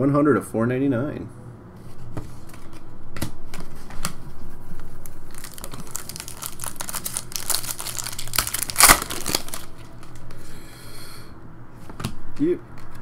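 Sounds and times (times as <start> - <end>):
foil wrapper crinkling and tearing: 5.0 - 10.2.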